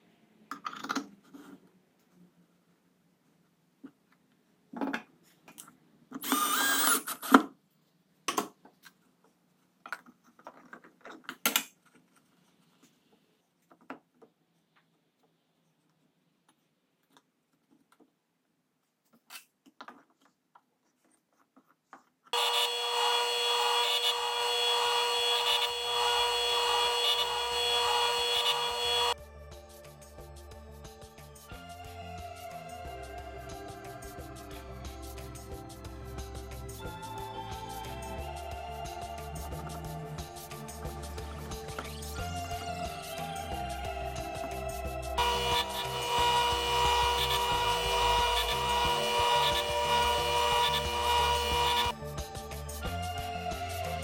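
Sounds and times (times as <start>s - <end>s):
table saw running: 22.4s - 29.2s, 45.2s - 51.9s.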